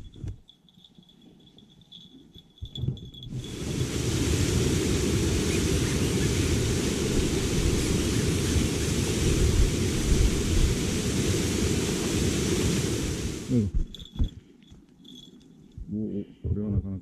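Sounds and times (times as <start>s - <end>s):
waterfall roaring: 3.4s - 13.6s.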